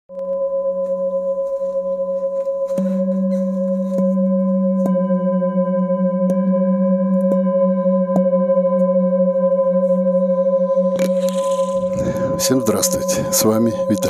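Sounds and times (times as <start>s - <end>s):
singing bowls ringing: 0.1s - 14.0s.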